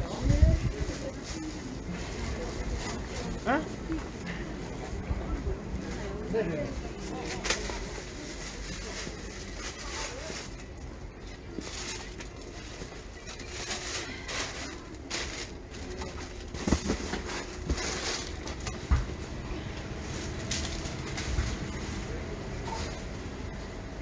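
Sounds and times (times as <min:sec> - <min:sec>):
knocks and rustles: 0:11.6 - 0:19.4.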